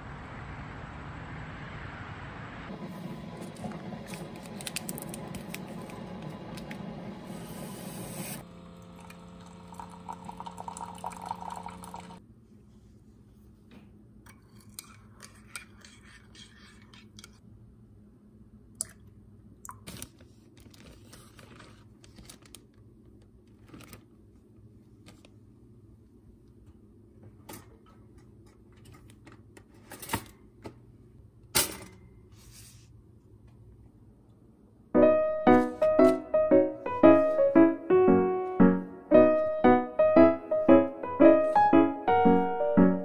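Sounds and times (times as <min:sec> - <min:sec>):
piano music: 0:35.0 - 0:43.0.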